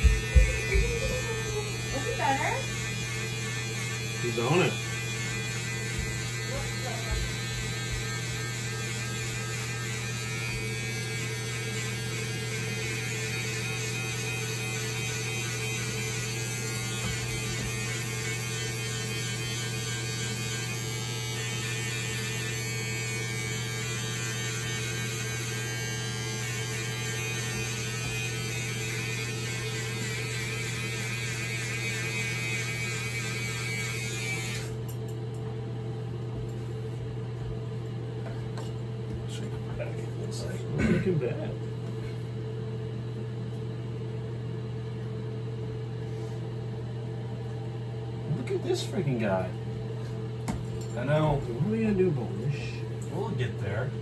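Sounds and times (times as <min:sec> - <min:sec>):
electric hair clippers buzzing: 0:00.0 - 0:35.4.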